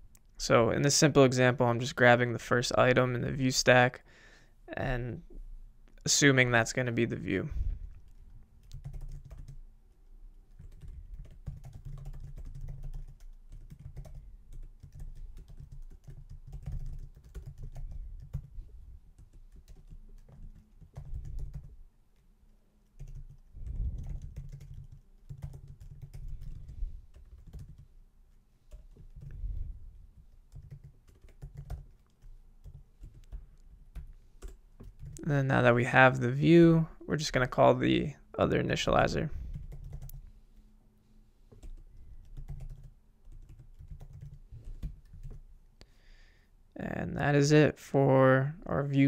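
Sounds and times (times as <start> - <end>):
computer keyboard typing: 8.1 - 9.6, 10.5 - 18.6, 19.2 - 21.8, 22.8 - 27.9, 28.7 - 29.3, 30.2 - 35.3, 39.5 - 40.2, 41.5 - 45.4.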